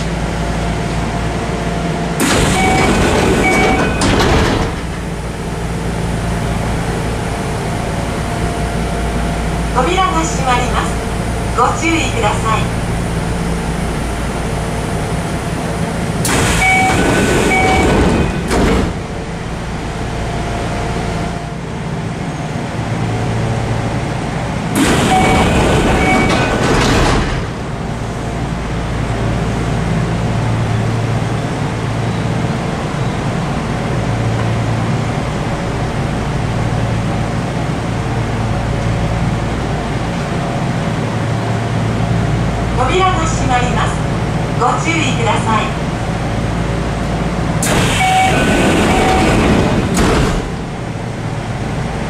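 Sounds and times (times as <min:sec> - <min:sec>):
train doors sliding: 0:00.0 - 0:08.9, 0:14.2 - 0:22.8, 0:23.8 - 0:29.4, 0:45.8 - 0:52.0
train equipment humming: 0:00.0 - 0:52.0
short beeps: 0:02.5 - 0:04.1, 0:16.6 - 0:18.3, 0:25.1 - 0:26.5, 0:47.9 - 0:49.4.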